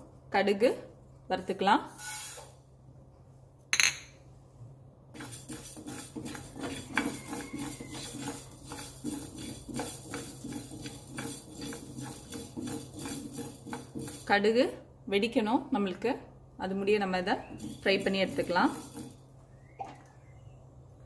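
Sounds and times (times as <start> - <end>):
wooden spatula stirring in a pan: 5.1 - 14.6, 17.0 - 19.6
seeds rattling in a pan: 5.2 - 14.3, 17.6 - 19.3.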